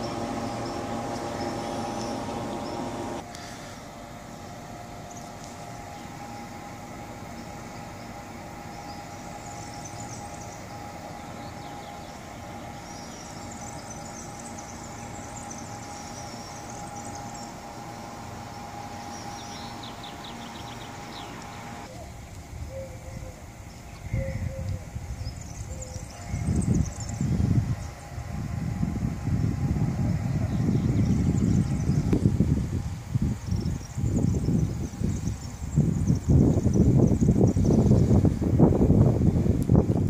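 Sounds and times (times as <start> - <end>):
electric train hum and rumble: 0.0 - 40.0.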